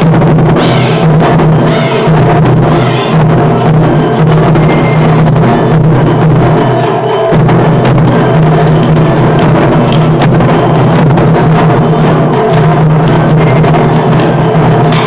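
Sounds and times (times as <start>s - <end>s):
taiko drums playing: 0.0s - 15.0s.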